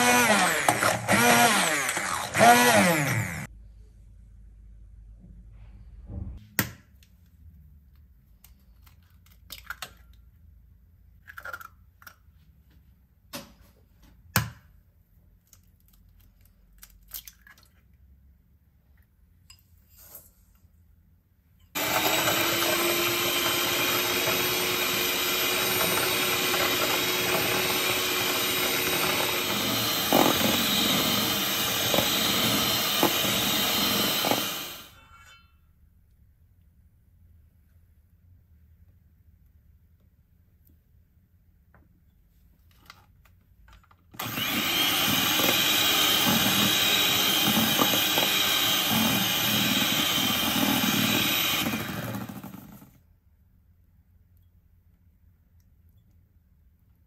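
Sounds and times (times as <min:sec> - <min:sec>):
electric mixer whisking: 0:21.8 - 0:35.0, 0:44.2 - 0:52.9.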